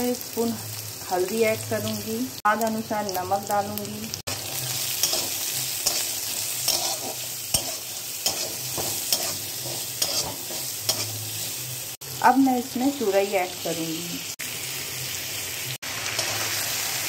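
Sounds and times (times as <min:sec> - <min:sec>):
food sizzling in oil: 0:00.0 - 0:17.0
spatula scraping a pan: 0:04.3 - 0:11.3.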